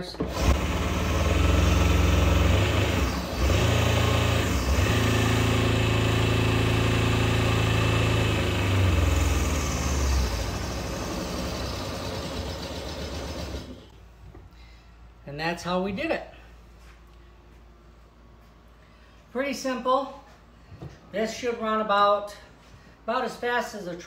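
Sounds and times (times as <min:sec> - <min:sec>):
electric motor humming: 0:00.2 - 0:13.9.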